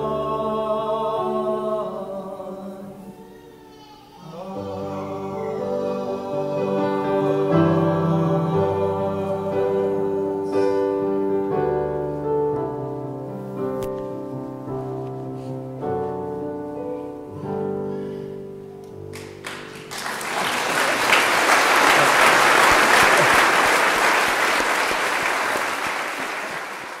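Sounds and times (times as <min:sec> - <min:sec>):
slow piano chords: 0:04.3 - 0:23.7
crowd applauding: 0:19.1 - 0:27.0.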